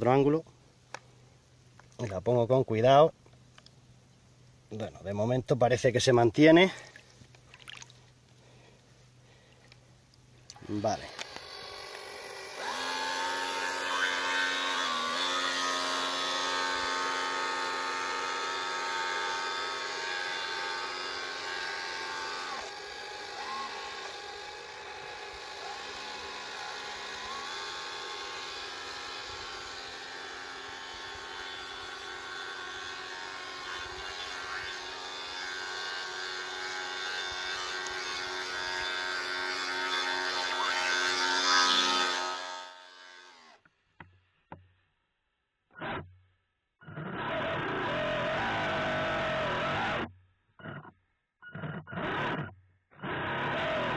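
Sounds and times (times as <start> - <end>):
small electric motor whining: 10.5 - 43.7, 46.8 - 53.9.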